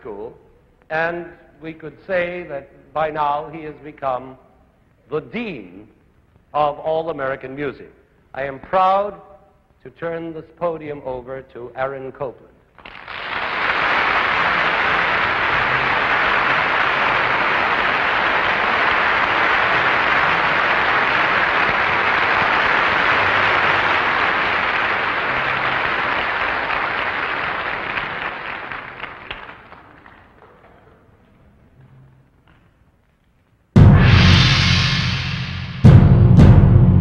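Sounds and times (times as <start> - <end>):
audience applauding: 12.8 - 30.5.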